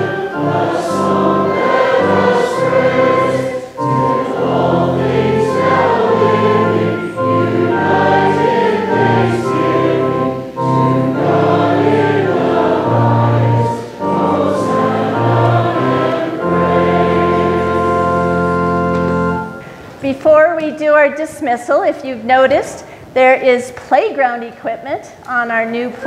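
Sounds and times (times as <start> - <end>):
congregation singing a hymn: 0.0 - 19.6
organ accompaniment: 0.0 - 20.0.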